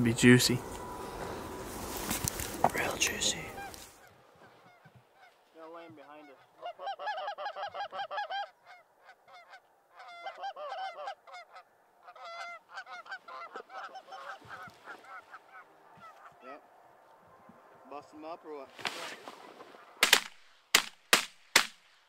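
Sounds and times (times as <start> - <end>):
goose honking: 2.8 - 16.5.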